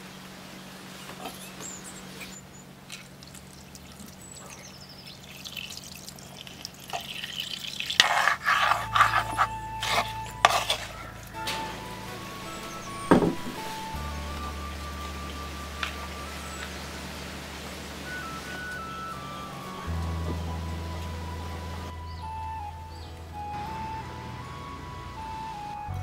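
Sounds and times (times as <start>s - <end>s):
water splashing and sloshing: 0.8s - 21.9s
background music: 8.7s - 26.0s.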